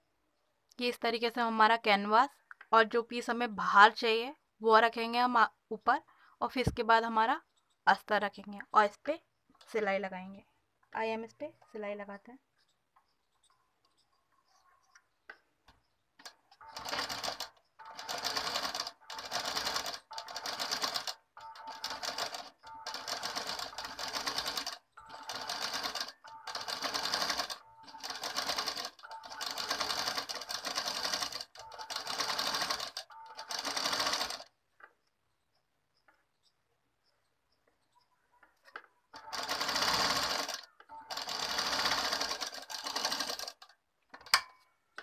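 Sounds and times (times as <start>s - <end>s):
sewing machine running: 16.2s - 34.5s, 39.2s - 43.7s.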